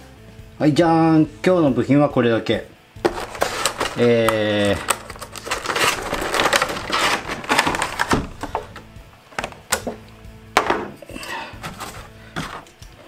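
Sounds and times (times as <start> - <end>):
quiet background music: 0.0 - 13.0
plastic packaging crinkling: 3.1 - 8.8
plastic tray snapping: 3.1 - 8.8, 9.4 - 10.0.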